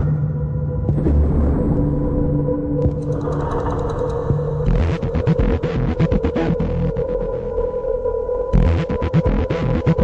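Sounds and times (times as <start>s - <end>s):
electronic pop music: 4.7s - 7.7s, 8.5s - 10.0s.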